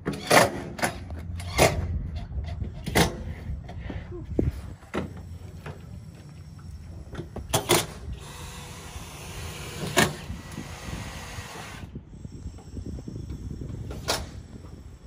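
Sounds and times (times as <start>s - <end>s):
power drill drilling: 8.1s - 11.9s.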